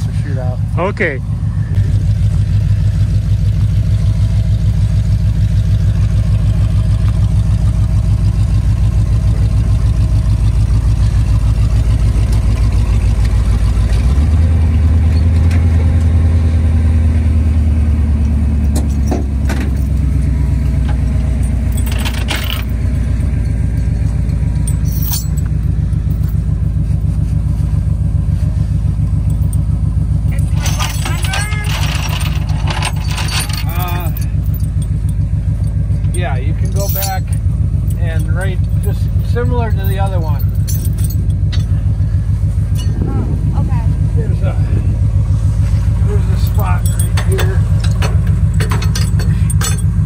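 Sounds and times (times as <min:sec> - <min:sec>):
truck engine idling: 0:00.0 - 0:50.0
metal chains clanking: 0:18.6 - 0:26.6, 0:29.1 - 0:42.1, 0:42.7 - 0:43.1, 0:46.0 - 0:50.0.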